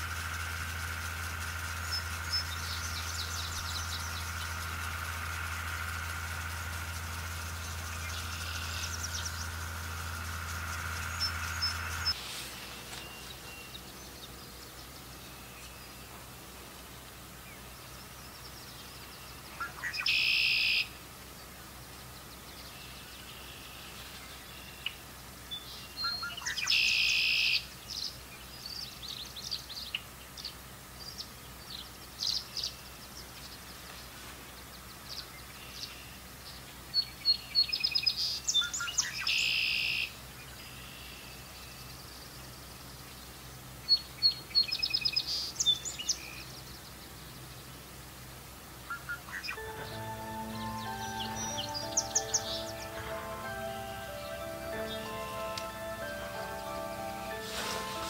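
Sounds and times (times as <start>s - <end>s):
buzzy bird notes: 0.0s - 14.2s, 49.4s - 58.0s
bird twittering high chirps: 0.0s - 16.2s, 17.5s - 20.9s, 22.2s - 33.7s, 48.9s - 58.0s.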